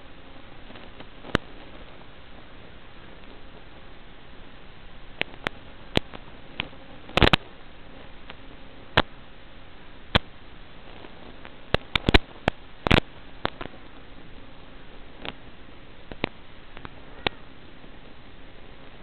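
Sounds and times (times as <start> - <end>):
steady radio hiss: 0.0 - 19.0
sharp clicks and pops: 0.6 - 2.0, 5.1 - 9.2, 10.1 - 14.5, 15.2 - 15.4, 16.0 - 17.4.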